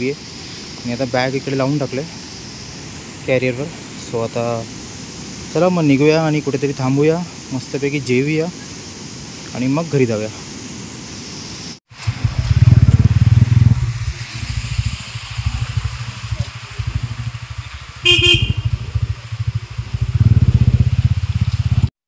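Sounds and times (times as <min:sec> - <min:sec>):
motorcycle engine running: 0:12.0 - 0:14.2, 0:14.8 - 0:21.9
short horn beep: 0:18.0 - 0:18.8.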